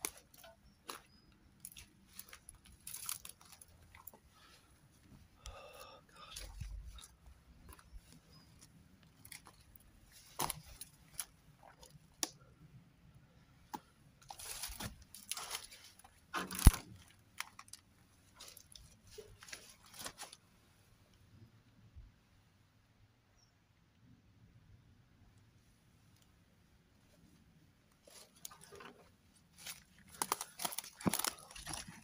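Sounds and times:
dead leaves crunching: 0:00.0 - 0:04.5, 0:07.7 - 0:11.4, 0:14.2 - 0:17.8, 0:28.0 - 0:32.0
footsteps through dry undergrowth: 0:00.0 - 0:04.5, 0:14.2 - 0:17.0, 0:28.0 - 0:32.0
twigs snapping: 0:00.0 - 0:04.5, 0:05.4 - 0:12.4, 0:13.7 - 0:17.8, 0:28.1 - 0:32.0.

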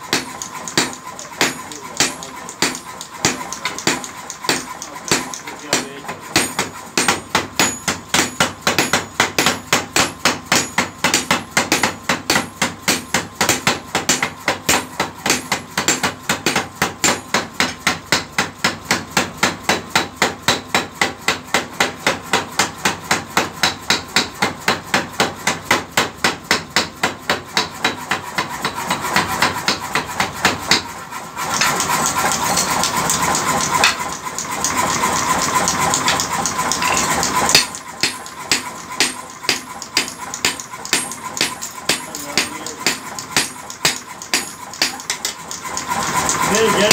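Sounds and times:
power hammer pounding steel: 0:00.0 - 0:46.9.

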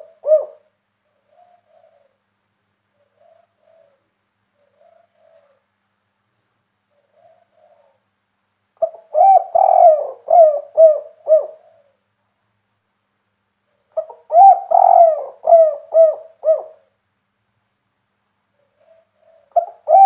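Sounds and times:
dove cooing: 0:00.0 - 0:02.3, 0:02.9 - 0:05.7, 0:06.9 - 0:08.1, 0:08.8 - 0:12.0, 0:13.8 - 0:17.0, 0:18.6 - 0:20.0.

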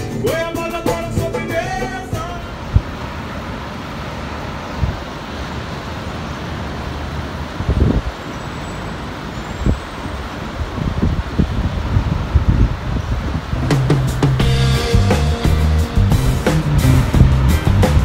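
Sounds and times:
distant city traffic: 0:00.0 - 0:18.0
low thumps: 0:13.6 - 0:18.0.

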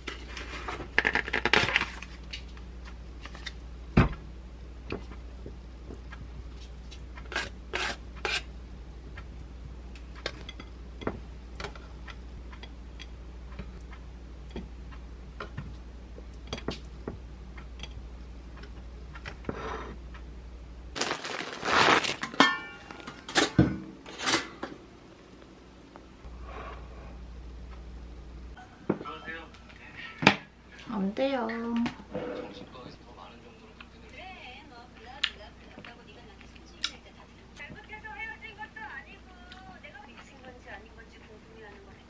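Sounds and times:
steady low hum: 0:00.0 - 0:42.0
dishes clattering: 0:22.2 - 0:24.8.

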